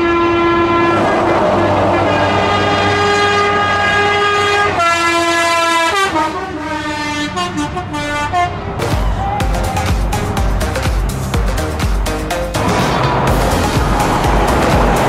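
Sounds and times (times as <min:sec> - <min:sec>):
truck air horn: 0:00.0 - 0:08.9
music with heavy bass beat: 0:08.8 - 0:15.0.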